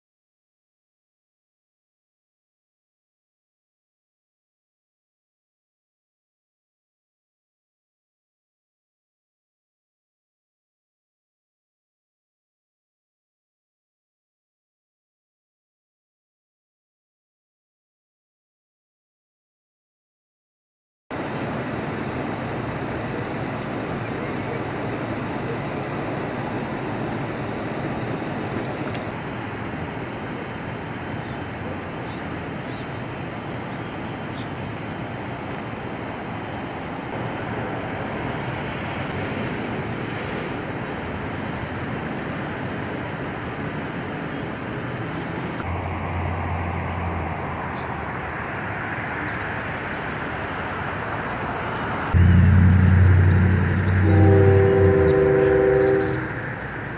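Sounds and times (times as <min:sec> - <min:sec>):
road traffic: 0:21.1 - 0:56.9.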